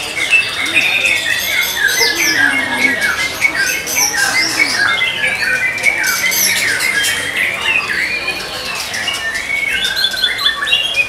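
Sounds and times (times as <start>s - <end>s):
birds singing: 0.2s - 7.2s.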